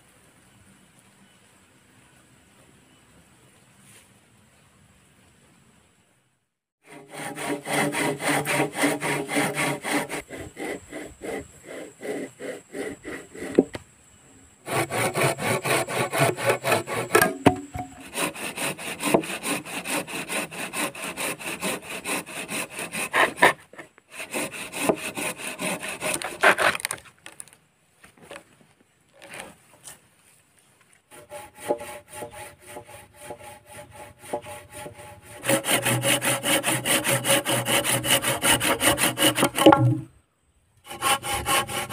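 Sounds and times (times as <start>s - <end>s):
handsaw cutting wood: 6.8s - 13.8s, 14.7s - 26.9s, 31.1s - 40.0s, 40.8s - 41.9s.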